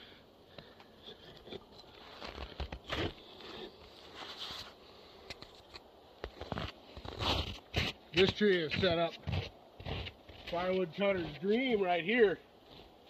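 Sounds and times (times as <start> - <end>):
footsteps crunching in snow: 1.9 - 4.8, 6.2 - 11.8.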